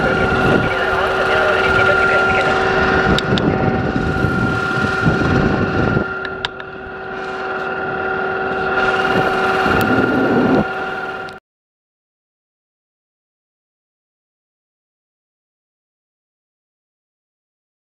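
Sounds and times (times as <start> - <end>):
machinery hum: 0.0 - 11.4.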